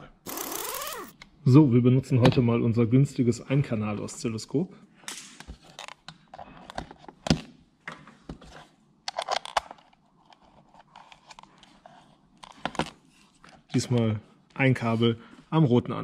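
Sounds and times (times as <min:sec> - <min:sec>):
clicks and clatter of adapter handling: 0:09.1 - 0:10.0.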